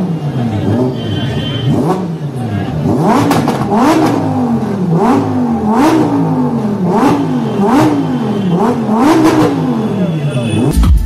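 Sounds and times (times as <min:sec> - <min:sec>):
car engine revving: 0:00.0 - 0:11.0
exhaust cracks: 0:02.8 - 0:06.2.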